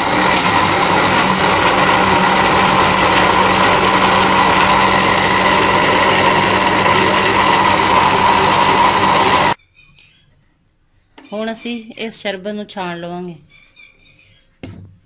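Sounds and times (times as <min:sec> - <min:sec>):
electric blender running: 0:00.0 - 0:09.6.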